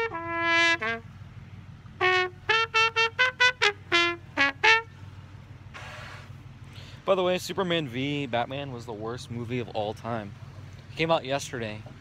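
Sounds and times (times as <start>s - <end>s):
trumpet playing: 0.0s - 1.2s, 1.9s - 5.1s.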